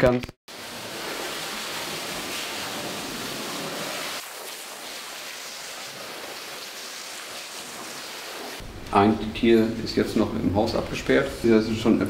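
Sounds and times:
hose spraying on concrete: 0:00.5 - 0:08.6.

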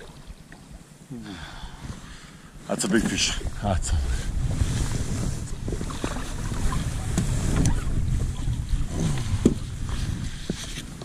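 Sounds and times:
wind buffeting microphone: 0:03.0 - 0:11.0.

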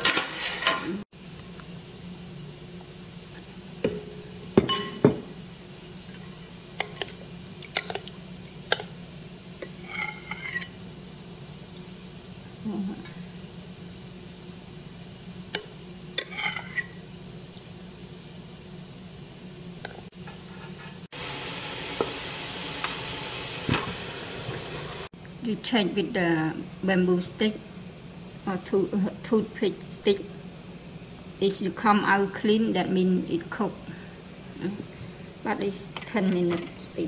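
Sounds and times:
metal cookware clinking: 0:03.9 - 0:05.2, 0:35.9 - 0:37.0.

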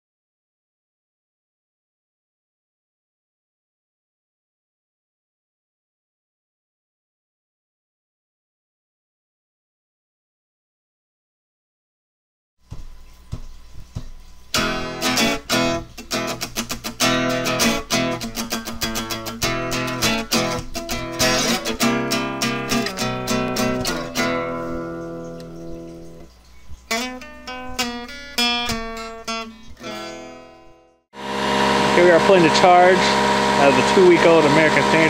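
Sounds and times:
acoustic guitar chords: 0:12.7 - 0:35.0.

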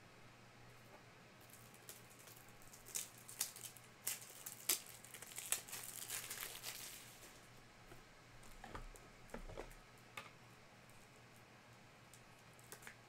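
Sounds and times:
plastic wrapper tearing and crinkling: 0:01.4 - 0:07.3.

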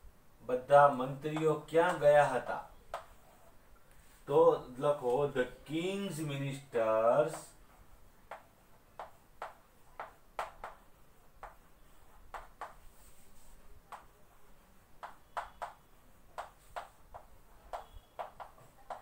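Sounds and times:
chalk tapping on a chalkboard: 0:02.9 - 0:03.2, 0:08.2 - 0:14.1, 0:15.0 - 0:19.0.

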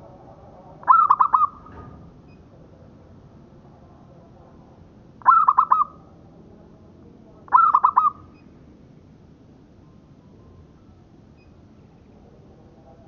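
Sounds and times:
dove cooing: 0:00.8 - 0:01.7, 0:05.2 - 0:06.0, 0:07.5 - 0:08.2.

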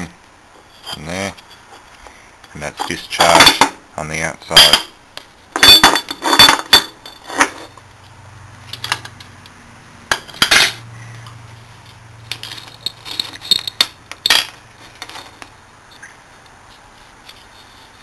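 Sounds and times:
metal parts clinking on workbench: 0:05.6 - 0:07.8, 0:10.1 - 0:10.8, 0:12.3 - 0:15.5.

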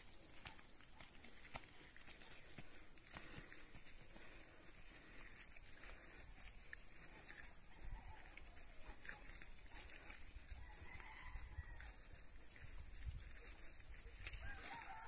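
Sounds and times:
footsteps on dirt path: 0:00.0 - 0:15.0
steady high-pitched hiss: 0:00.0 - 0:15.0
rooster crowing: 0:10.6 - 0:12.1, 0:14.3 - 0:15.0.

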